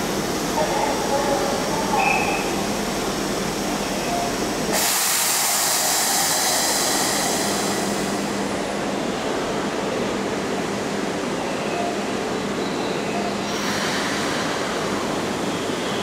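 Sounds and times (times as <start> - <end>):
electric train humming: 0.0 - 11.4
air hissing release: 4.8 - 8.1.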